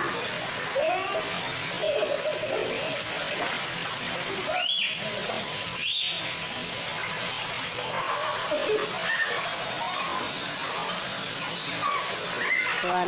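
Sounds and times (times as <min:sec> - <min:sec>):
pool water splashing: 0:00.0 - 0:13.0
children shrieking: 0:07.9 - 0:10.4, 0:11.8 - 0:13.0.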